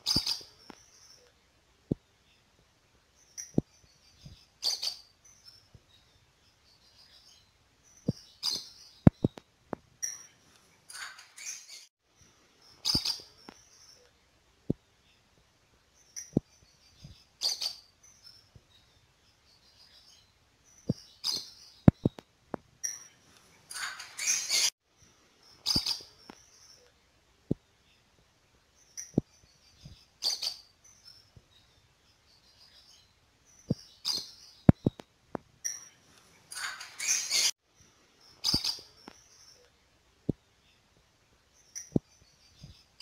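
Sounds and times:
lovebirds chirping and screeching: 0:00.0 - 0:01.2, 0:10.9 - 0:11.9, 0:12.7 - 0:14.0, 0:22.8 - 0:24.7, 0:35.8 - 0:37.5, 0:38.4 - 0:39.6
lovebirds chirping: 0:00.0 - 0:01.4, 0:02.0 - 0:09.4, 0:10.0 - 0:14.2, 0:14.9 - 0:22.2, 0:22.8 - 0:26.9, 0:28.7 - 0:35.0, 0:35.6 - 0:39.7.

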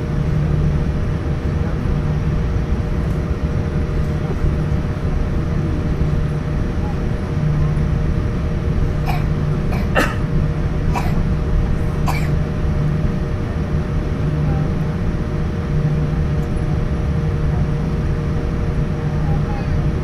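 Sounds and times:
airplane cabin rumble: 0:00.0 - 0:20.0.

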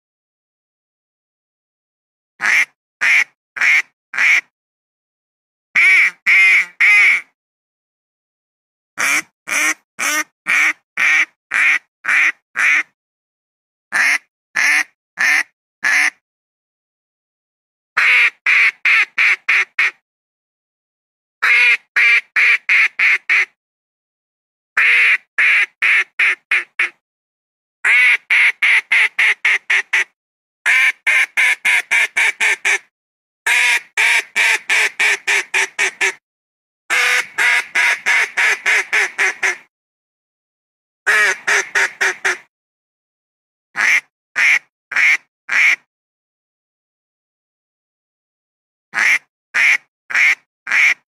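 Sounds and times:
duck quacking: 0:02.4 - 0:04.5, 0:05.8 - 0:07.3, 0:09.0 - 0:12.9, 0:13.9 - 0:16.2, 0:18.0 - 0:20.0, 0:21.4 - 0:23.5, 0:24.8 - 0:27.0, 0:27.8 - 0:30.1, 0:30.7 - 0:32.8, 0:33.5 - 0:36.2, 0:36.9 - 0:39.7, 0:41.1 - 0:42.5, 0:43.8 - 0:45.9, 0:49.0 - 0:51.0.

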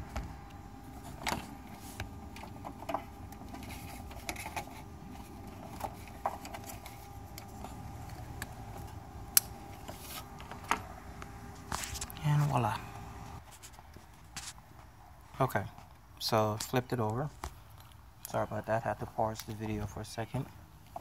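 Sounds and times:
equipment being handled: 0:00.0 - 0:12.7
low steady hum: 0:00.0 - 0:13.9.

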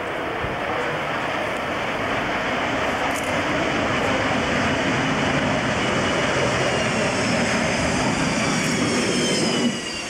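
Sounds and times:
jet engines rushing with whine: 0:00.0 - 0:10.0.

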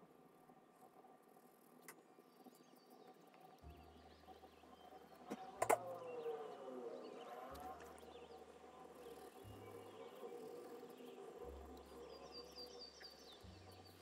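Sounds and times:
low hum: 0:00.0 - 0:14.0
ambient music: 0:03.1 - 0:14.0.

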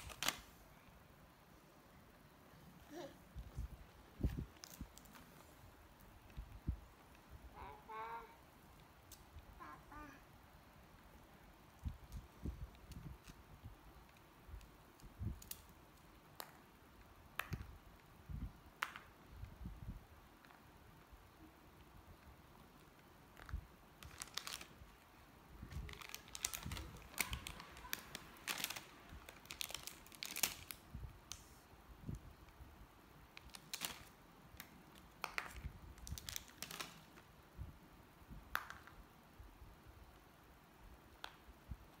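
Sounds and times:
foil snack packet crinkling: 0:00.0 - 0:00.5, 0:24.0 - 0:24.8, 0:25.8 - 0:30.8, 0:33.4 - 0:34.1, 0:35.0 - 0:37.2.

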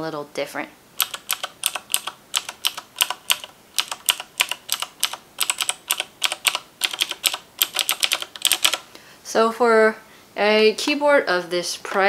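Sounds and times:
mechanical keyboard clicks: 0:01.0 - 0:08.8.

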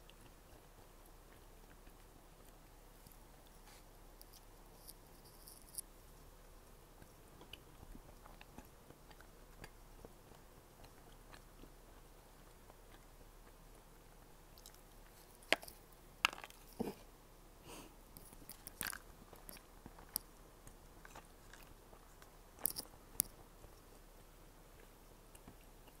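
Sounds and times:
chewing and crunching bites: 0:00.0 - 0:17.0, 0:18.2 - 0:26.0.

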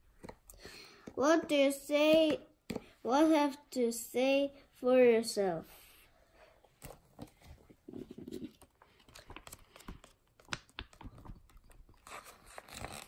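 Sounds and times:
small taps and flaps: 0:09.1 - 0:11.6.

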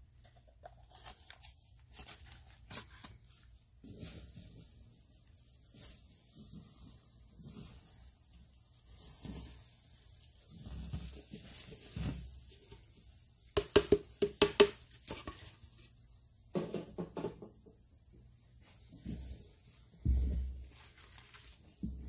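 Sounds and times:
sharp taps on plastic cup: 0:13.6 - 0:14.8
soft wet handling sounds: 0:17.8 - 0:22.0.

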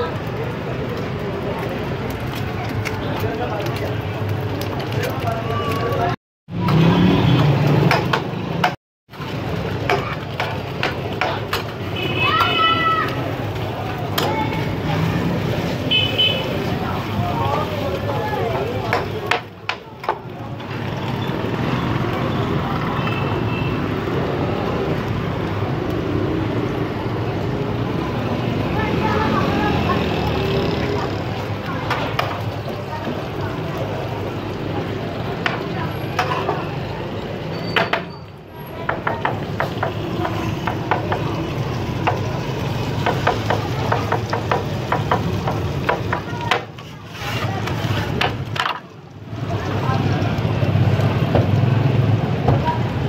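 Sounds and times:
frying sizzle: 0:00.0 - 0:53.0
metal spatula scraping griddle: 0:46.8 - 0:48.2.

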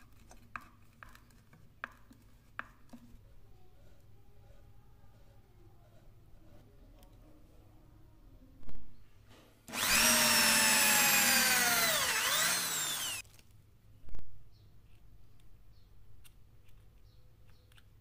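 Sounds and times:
electric drill boring into wood: 0:09.7 - 0:13.2.

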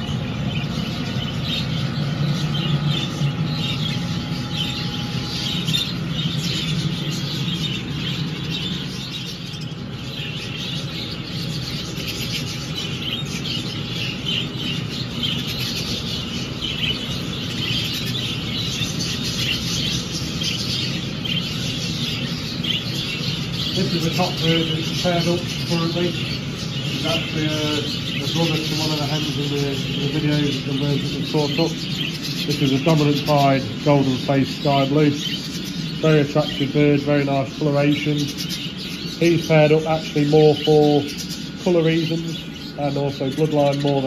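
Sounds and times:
budgerigars chattering: 0:00.0 - 0:44.0
low steady hum: 0:00.0 - 0:44.0.

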